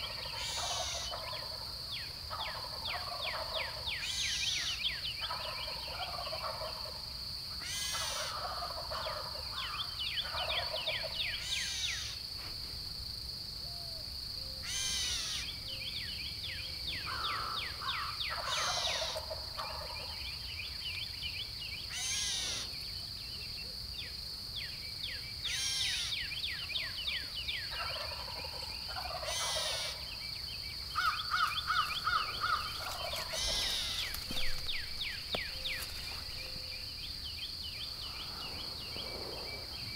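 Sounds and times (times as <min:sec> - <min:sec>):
turkeys gobbling: 0:02.3 - 0:03.8, 0:05.3 - 0:07.0, 0:08.1 - 0:09.4, 0:18.3 - 0:20.1, 0:27.7 - 0:30.1, 0:31.0 - 0:36.7.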